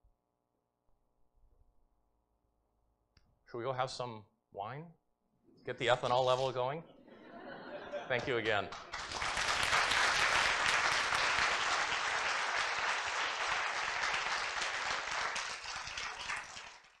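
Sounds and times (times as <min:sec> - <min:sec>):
audience applauding: 0:07.9 - 0:17.0.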